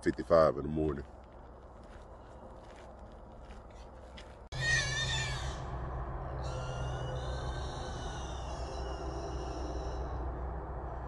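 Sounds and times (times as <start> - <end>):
low steady hum: 1.1 - 11.0
hog squealing: 4.6 - 5.7, 6.4 - 10.2.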